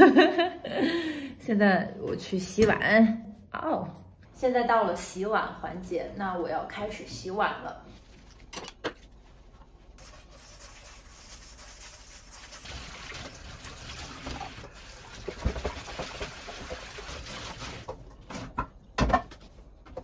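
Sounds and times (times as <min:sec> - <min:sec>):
dishes being scrubbed: 0:10.0 - 0:17.9
dishware clinking and knocking: 0:18.4 - 0:19.4.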